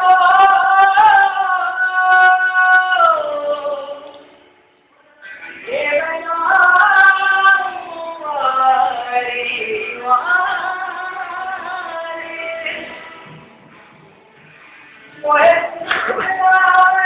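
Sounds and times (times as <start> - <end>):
man singing: 0.0 - 4.2, 5.5 - 13.0, 15.2 - 17.0
acoustic guitar: 0.0 - 17.0.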